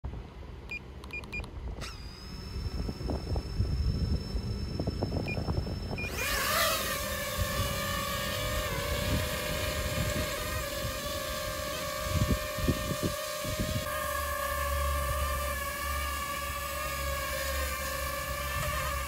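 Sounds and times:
faint high whine: 0:00.1 - 0:19.0
drone propeller hum: 0:00.4 - 0:19.0
short beeps: 0:00.7 - 0:06.2.

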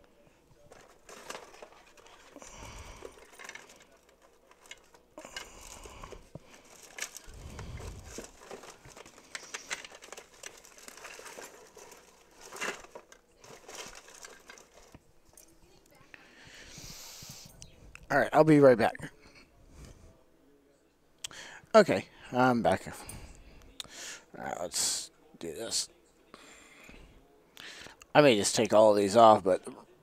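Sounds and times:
rummaging among tools: 0:00.4 - 0:15.6.

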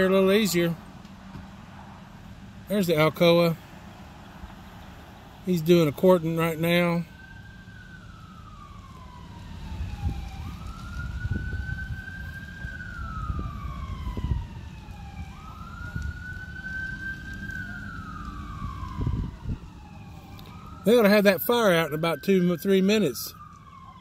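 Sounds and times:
fire truck siren wailing: 0:00.0 - 0:24.0
steady low rumble: 0:07.8 - 0:20.8.

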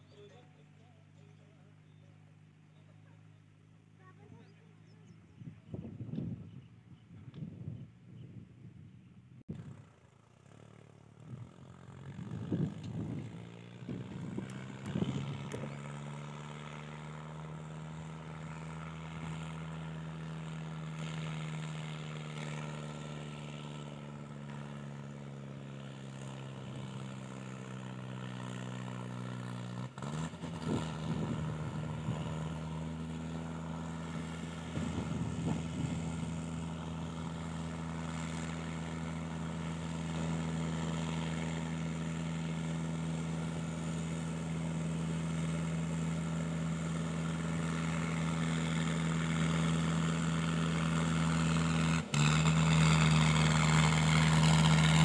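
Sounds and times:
tractor diesel engine running: 0:09.5 - 0:55.0.

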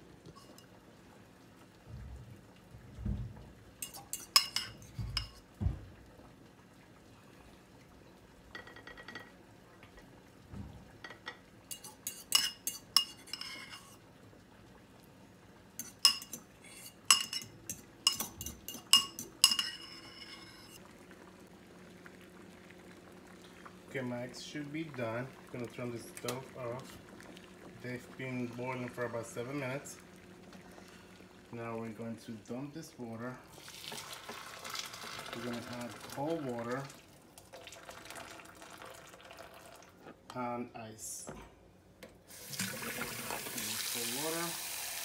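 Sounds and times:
soft thumps: 0:04.9 - 0:06.0
metal fork clinking on ceramic bowl: 0:15.8 - 0:20.4.

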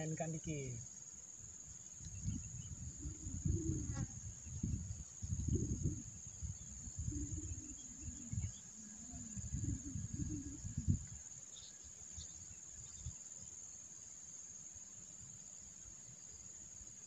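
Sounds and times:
high-pitched insect drone: 0:00.0 - 0:16.9.

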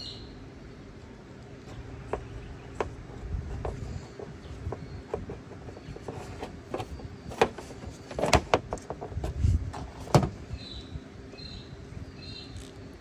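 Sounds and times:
birds chirping: 0:00.0 - 0:09.2, 0:10.1 - 0:13.0
dull thump: 0:06.1 - 0:10.4.

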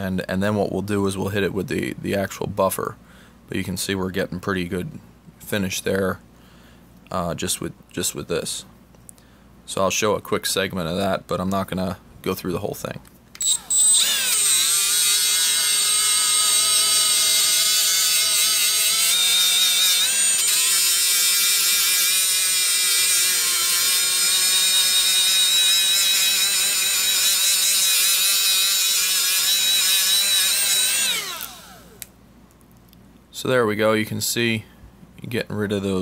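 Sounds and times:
rotary tool motor whine: 0:13.4 - 0:32.1.

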